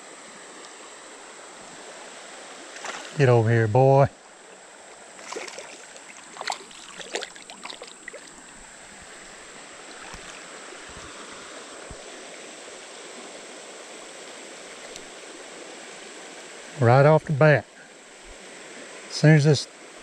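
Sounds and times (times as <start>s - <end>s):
creek water flowing: 0.0s - 20.0s
splashes and knocks: 2.7s - 3.2s, 5.2s - 9.1s, 9.9s - 11.2s.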